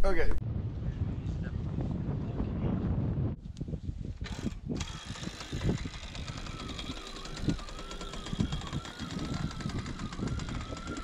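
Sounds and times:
wind rumble on microphone: 0.0 - 11.0
electric winch motor whine: 4.2 - 11.0.

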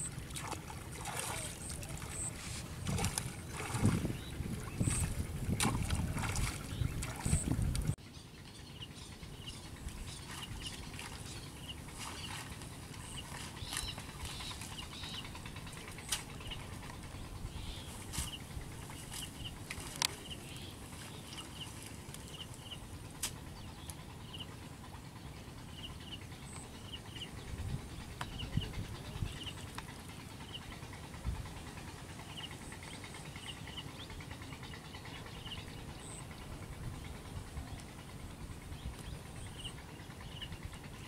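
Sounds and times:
water sloshing and splashing: 0.0 - 8.0, 9.9 - 16.5, 17.9 - 22.5
sharp splashes: 0.2 - 4.2, 4.8 - 7.4.

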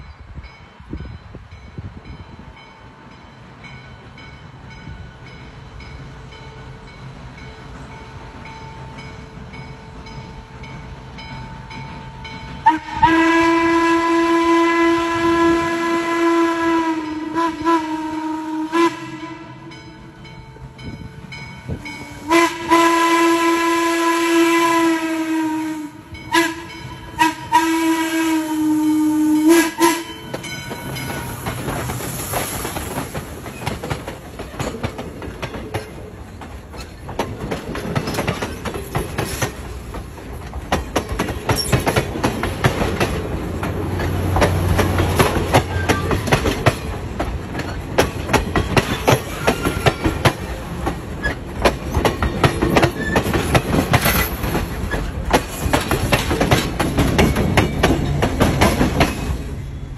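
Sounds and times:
low train rumble: 0.0 - 59.9
steam locomotive whistle: 12.5 - 20.1, 21.8 - 31.6, 49.2 - 50.4
wheels clicking over rail joints: 29.7 - 59.6.

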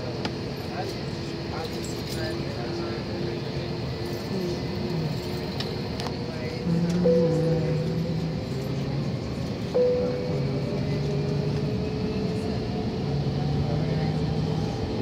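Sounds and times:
jet engines humming in cabin: 0.0 - 15.0
clear tone: 6.8 - 8.6, 9.8 - 11.0.

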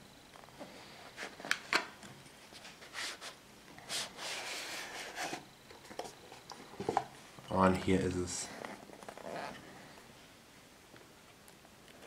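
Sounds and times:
cardboard rubbing on cardboard: 2.5 - 5.4.

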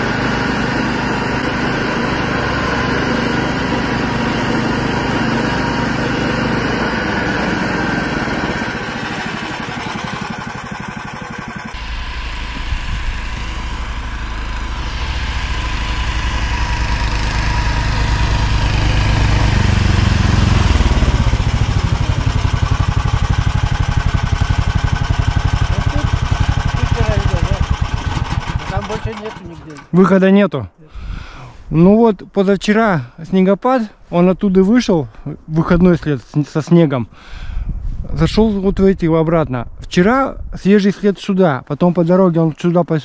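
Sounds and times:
snowmobile engine running: 0.0 - 29.7.

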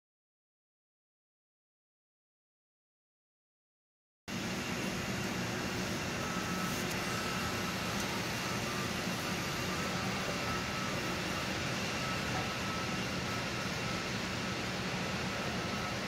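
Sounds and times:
hum and hiss of ventilation: 4.3 - 16.0
faint high-pitched whines: 4.4 - 16.0.

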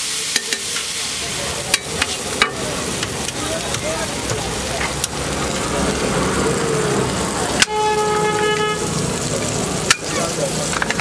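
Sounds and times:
food sizzling on a griddle: 0.0 - 11.0
vehicle horn: 7.6 - 9.0.

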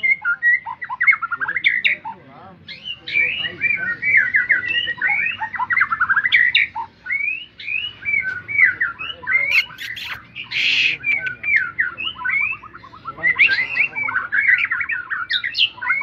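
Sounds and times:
bird singing whistles and trills: 2.7 - 16.0
harsh noisy bird note: 9.5 - 11.4
bird sharp clicks: 9.5 - 11.6.

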